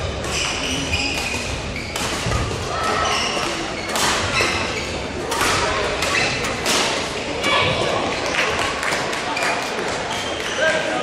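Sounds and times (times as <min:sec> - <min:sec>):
court shoes squeaking: 0:00.0 - 0:06.9, 0:09.3 - 0:11.0
racket hitting shuttlecock: 0:00.2 - 0:04.6, 0:05.2 - 0:07.1.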